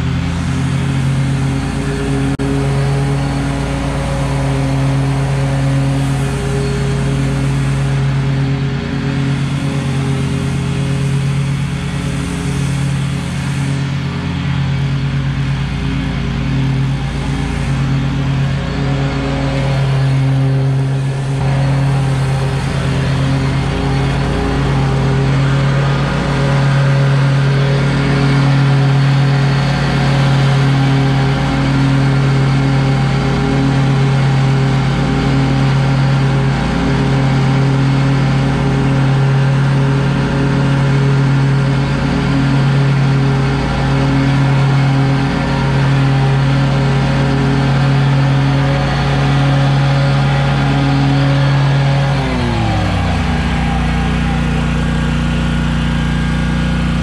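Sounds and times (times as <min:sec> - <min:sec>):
mower engine running: 0:00.0 - 0:57.0
mower blades spinning: 0:47.4 - 0:57.0.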